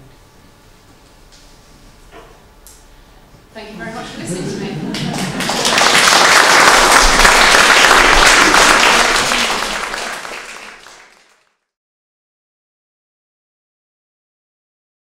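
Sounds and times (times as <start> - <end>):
audience applauding: 4.1 - 11.6.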